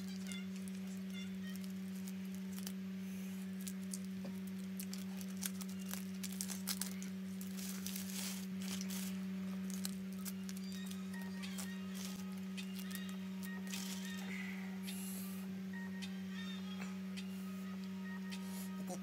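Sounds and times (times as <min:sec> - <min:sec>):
leaf wrapper tearing: 0:00.0 - 0:02.8, 0:03.4 - 0:14.2
plastic bag rustling: 0:00.0 - 0:02.8, 0:03.4 - 0:14.2
dried leaf wrapper crinkling: 0:00.0 - 0:14.3
steady low hum: 0:00.0 - 0:19.0.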